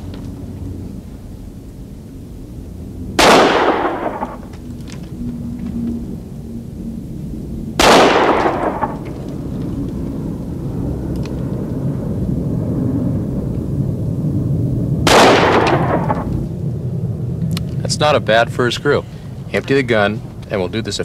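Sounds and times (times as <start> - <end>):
revolver shots: 3.2 - 4.5, 15.1 - 16.3.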